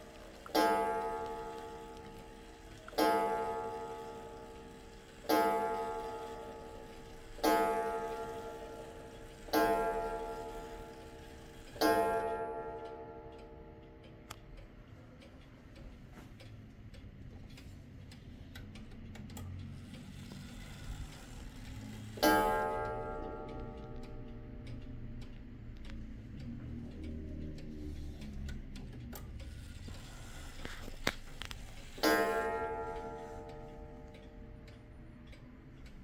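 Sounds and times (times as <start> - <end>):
clock gong striking: 0.0 - 13.8, 22.0 - 24.6
clock ticking: 0.0 - 36.0.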